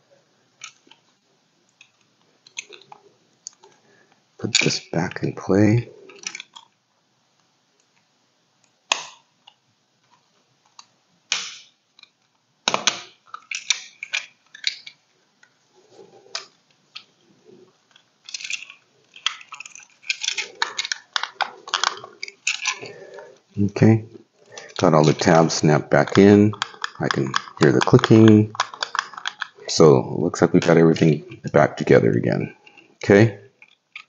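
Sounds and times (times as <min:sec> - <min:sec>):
handling clicks of plastic and metal: 0:00.6 - 0:03.8, 0:06.0 - 0:06.8, 0:07.8 - 0:23.6, 0:24.2 - 0:29.7, 0:32.4 - 0:34.0.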